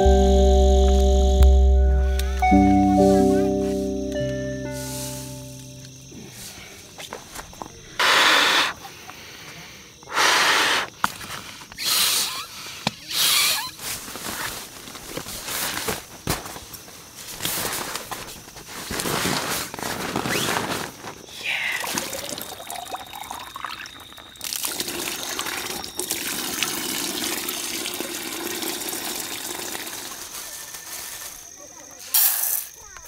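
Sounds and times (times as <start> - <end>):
water pouring from bag: 21.7 - 23.4, 24.4 - 31.2.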